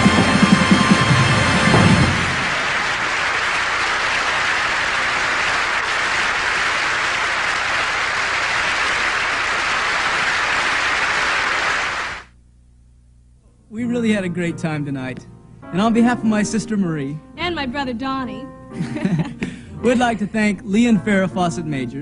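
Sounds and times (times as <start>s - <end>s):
audience applauding: 0.0s - 12.3s.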